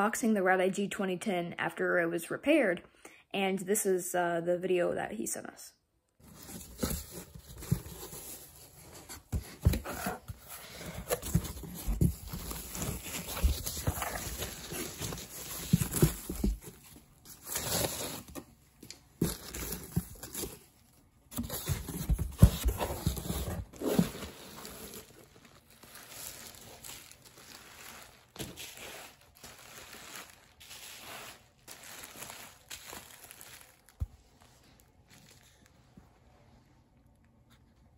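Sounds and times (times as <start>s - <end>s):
foam and bubble wrap crinkling: 6.2s - 35.9s.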